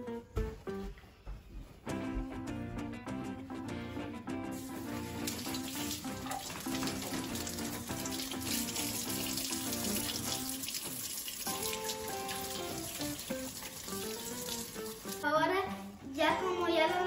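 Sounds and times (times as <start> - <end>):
background music: 0.0 - 17.0
faucet running into metal sink: 4.6 - 15.2
water splashing over hands: 4.6 - 15.2.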